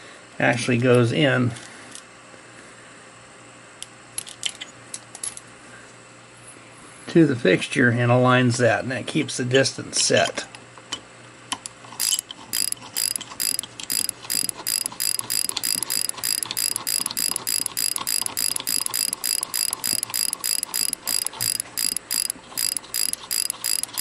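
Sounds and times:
metal nut spinning on threaded bolt: 0:12.0 - 0:24.0.

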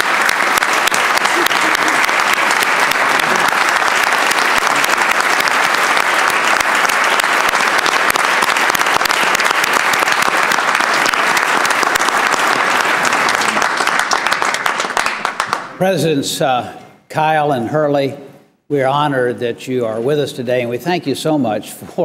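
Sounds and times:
crowd applauding: 0:00.0 - 0:15.8.

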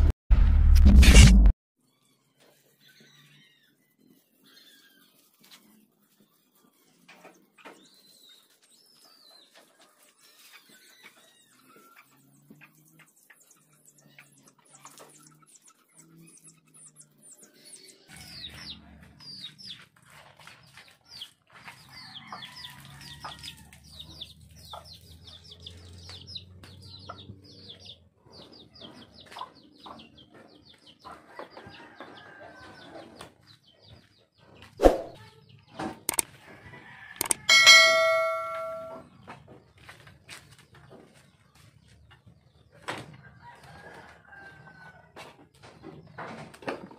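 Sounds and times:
small birds chirping: 0:01.8 - 0:36.8
chickens clucking: 0:18.1 - 0:38.6
loud sharp click: 0:36.1 - 0:36.3.

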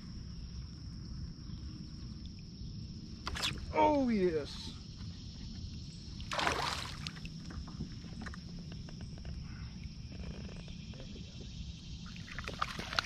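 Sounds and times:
fish splashing at surface: 0:06.3 - 0:07.2.

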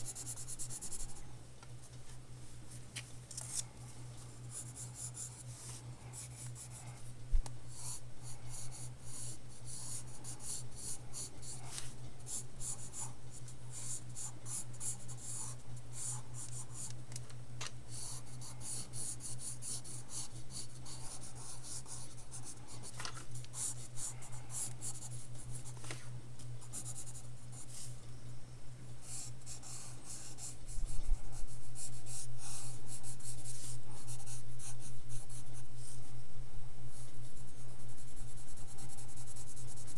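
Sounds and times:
pencil scratching on paper: 0:00.0 - 0:01.2, 0:04.4 - 0:06.9, 0:07.7 - 0:16.9, 0:17.9 - 0:25.8, 0:29.0 - 0:31.1, 0:37.5 - 0:39.9
steady low hum: 0:00.0 - 0:39.9.

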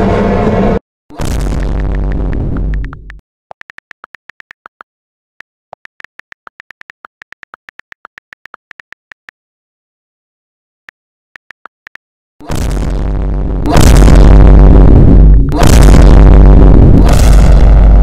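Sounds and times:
touchscreen keyboard clicks: 0:01.9 - 0:04.9, 0:05.7 - 0:09.4.

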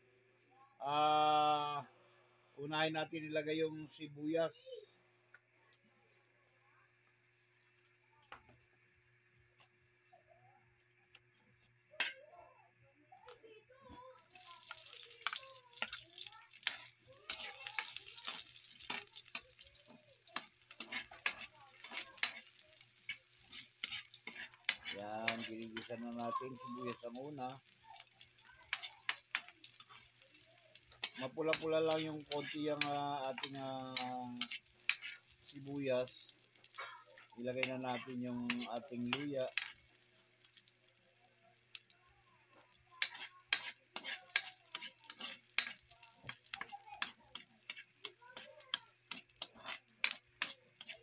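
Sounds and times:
onions sizzling in oil: 0:13.9 - 0:51.0
metal ladle scraping a pan: 0:16.6 - 0:27.2, 0:28.7 - 0:35.5, 0:43.0 - 0:48.2, 0:49.1 - 0:51.0.

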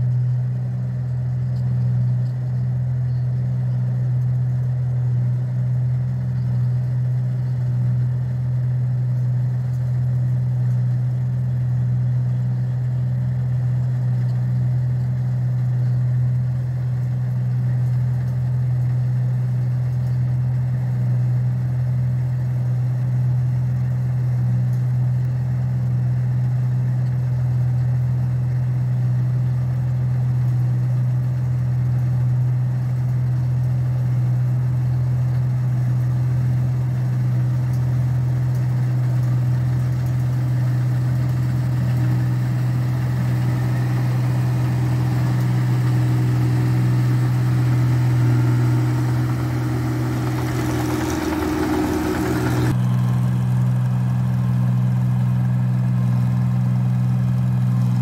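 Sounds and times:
combine harvester running: 0:28.7 - 0:58.0.

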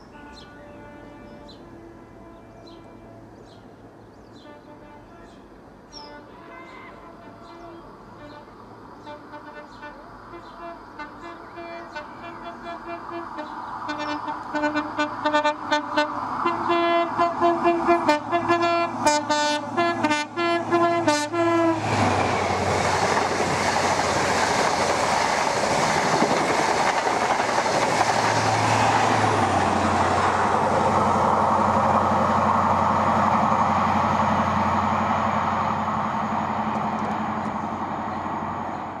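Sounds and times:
train horn: 0:00.0 - 0:03.5, 0:04.4 - 0:22.6
train wheels rushing on rails: 0:12.8 - 0:39.0.

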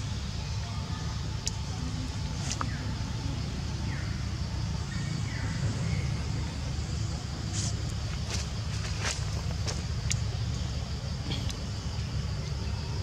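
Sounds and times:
steady low rumble: 0:00.0 - 0:13.0
faint sharp clicks: 0:01.4 - 0:01.7, 0:10.0 - 0:10.6.

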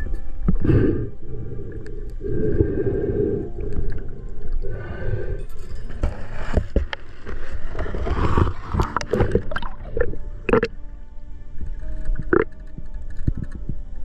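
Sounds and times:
underwater low rumble: 0:00.0 - 0:14.0
gurgling bubbles: 0:07.7 - 0:10.7
sharp clicks and knocks: 0:11.7 - 0:13.8.

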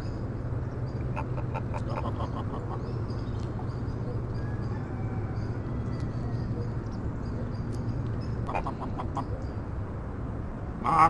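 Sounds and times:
geese gabbling: 0:01.0 - 0:03.7, 0:08.5 - 0:09.4
low goose honks: 0:08.5 - 0:09.2.

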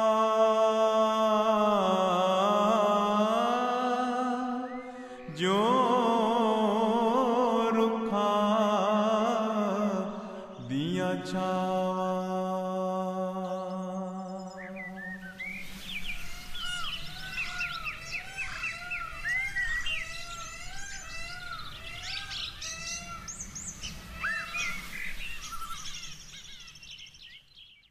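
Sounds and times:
birds chirping and trilling: 0:00.0 - 0:27.9
low arching bird call: 0:03.2 - 0:07.8, 0:13.3 - 0:27.9.

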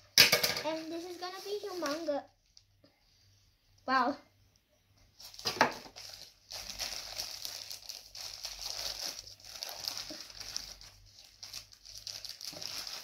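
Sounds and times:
plastic bag crinkling: 0:00.6 - 0:02.3, 0:05.2 - 0:13.0.

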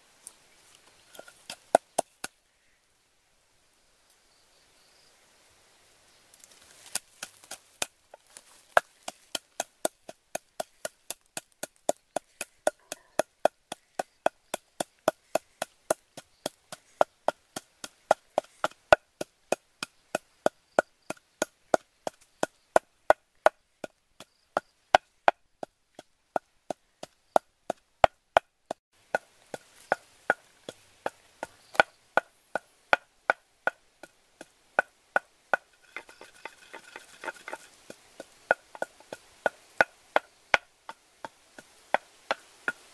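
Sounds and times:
wooden pestle knocking in mortar: 0:08.7 - 0:20.2, 0:24.6 - 0:42.8.

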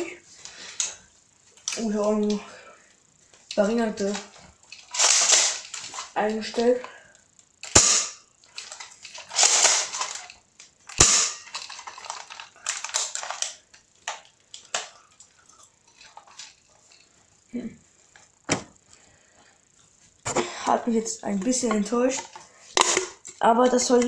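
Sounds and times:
air gun shots: 0:07.7 - 0:08.2, 0:11.0 - 0:11.4.

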